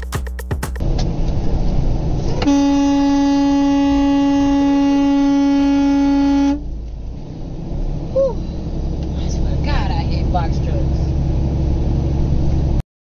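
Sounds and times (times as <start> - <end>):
road noise: 0.8 - 12.8
truck horn long blast: 2.4 - 6.7.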